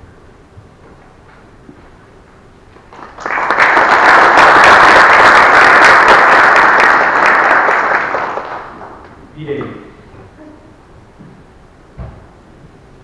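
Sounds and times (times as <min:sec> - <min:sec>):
audience applauding: 0:02.9 - 0:09.2.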